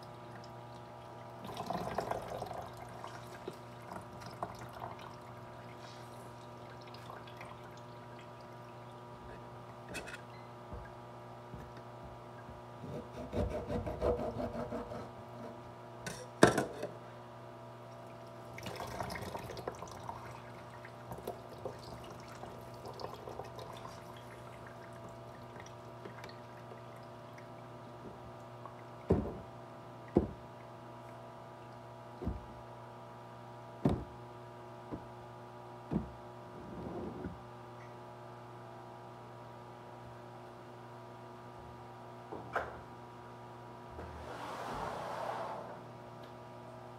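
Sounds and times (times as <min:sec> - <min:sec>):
juice splashing and pouring: 0:00.4 - 0:09.0, 0:18.0 - 0:27.6.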